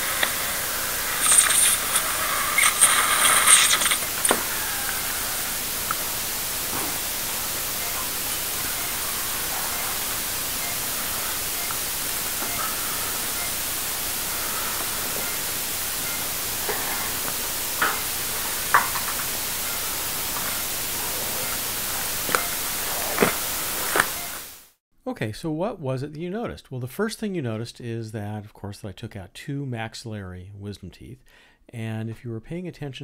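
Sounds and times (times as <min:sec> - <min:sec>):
surgical instruments clicking: 0:00.0 - 0:06.1
steady hiss: 0:00.0 - 0:24.8.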